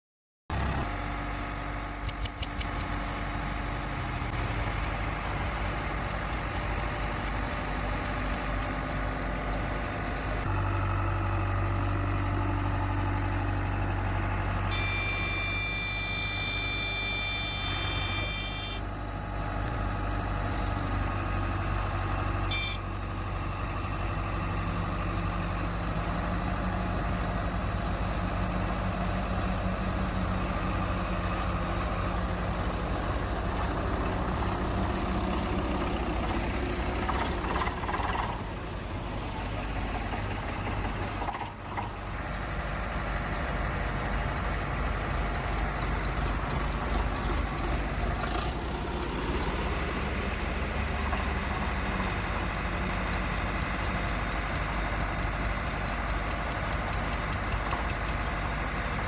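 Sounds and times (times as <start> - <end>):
diesel engine droning: 0.5 - 59.0
tractor engine hum: 0.5 - 59.0
high steady tone: 14.7 - 18.8, 22.5 - 22.8.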